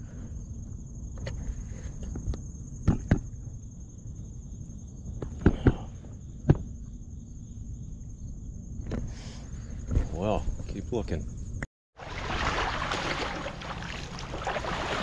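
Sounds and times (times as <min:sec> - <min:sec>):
high insect trill: 0:00.0 - 0:15.0.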